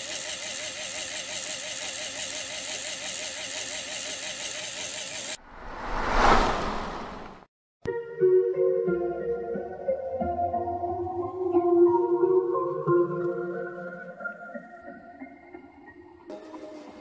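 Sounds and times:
electric motor and gears whirring: 0.0 - 5.4
whoosh: 5.4 - 7.5.

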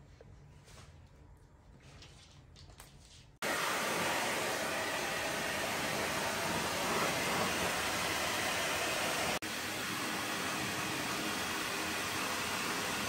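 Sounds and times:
hair dryer blowing air: 3.4 - 13.0.

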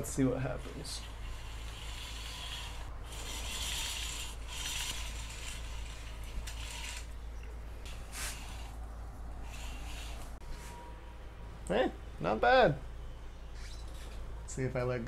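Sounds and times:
cord whirring through pulleys: 0.2 - 10.4.

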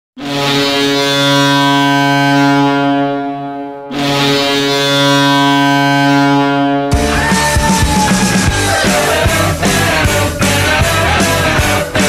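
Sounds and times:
goal horn blasts: 0.2 - 9.0.

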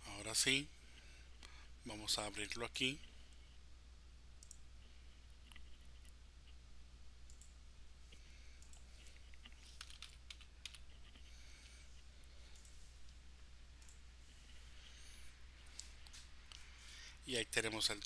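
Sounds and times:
steady low hum: 0.0 - 18.0
computer mouse clicks: 4.4 - 4.6, 7.3 - 7.5, 12.5 - 12.8, 13.8 - 14.0.

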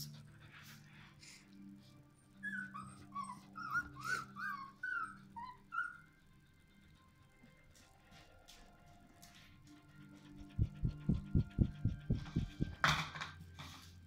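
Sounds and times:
puppy whimpering and yipping: 2.3 - 6.3.

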